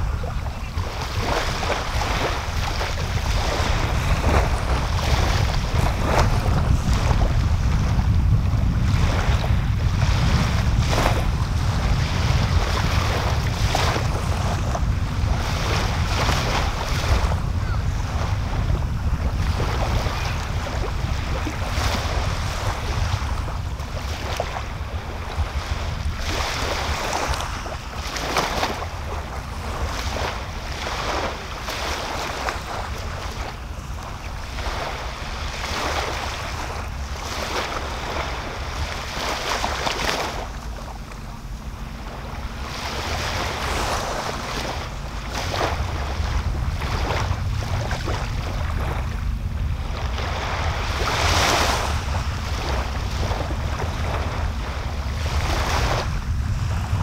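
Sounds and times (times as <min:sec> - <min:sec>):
small waves washing on sand: 0:00.0 - 0:57.0
wind buffeting microphone: 0:00.0 - 0:57.0.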